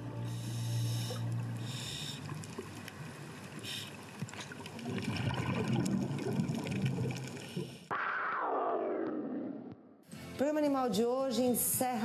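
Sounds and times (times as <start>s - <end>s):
diver exhaling underwater bubbles: 3.6s - 9.7s.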